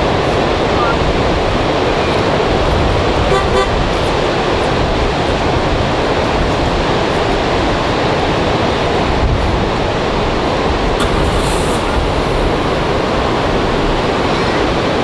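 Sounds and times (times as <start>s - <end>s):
ocean surf: 0.0s - 15.0s
short honk-like toot: 3.3s - 3.8s.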